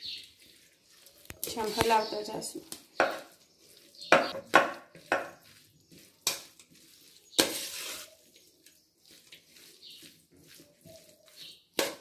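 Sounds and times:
spoon scraping pan: 0.0s - 12.0s.

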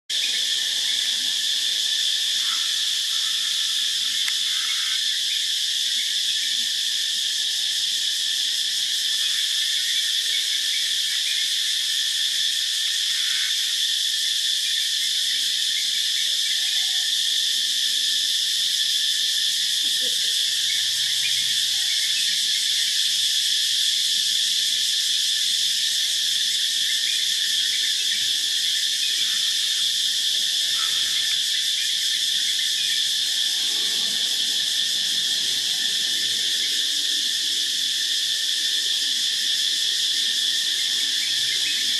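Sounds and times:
cicadas droning: 0.1s - 41.9s.

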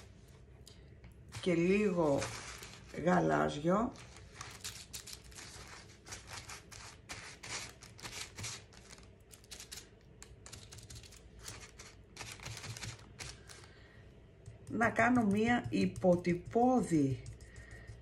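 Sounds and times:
tapping and crinkling of foil: 7.3s - 13.8s.

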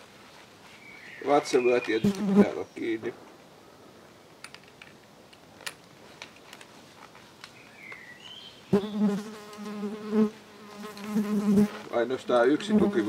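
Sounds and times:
flying insect buzzing: 8.7s - 11.9s.

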